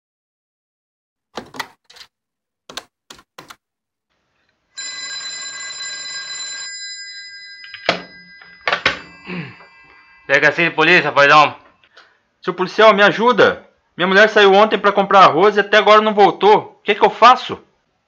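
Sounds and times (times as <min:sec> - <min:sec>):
telephone bell ringing: 0:04.8 - 0:11.6
handset clattering: 0:06.8 - 0:10.0.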